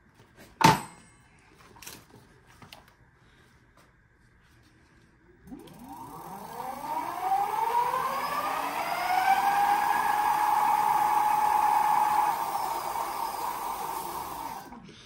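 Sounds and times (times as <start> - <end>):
electric hub motor whining: 5.5 - 14.8.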